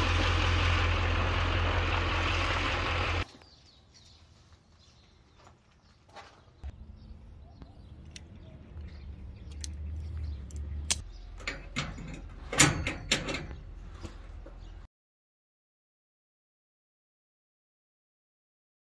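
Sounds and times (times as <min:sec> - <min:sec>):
metal hardware clinking: 0:09.5 - 0:13.8.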